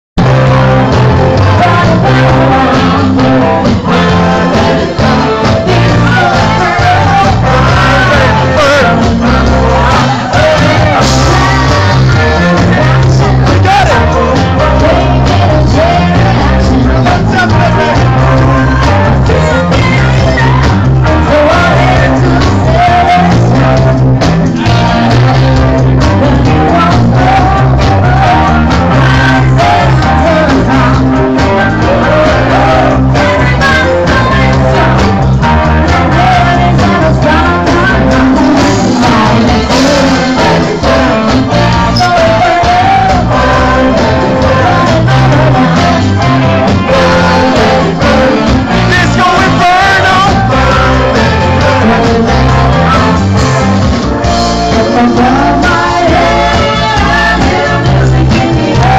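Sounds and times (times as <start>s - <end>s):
electric guitars: 0.2s - 58.9s
live rock band playing: 0.2s - 58.9s
person singing: 0.2s - 58.9s.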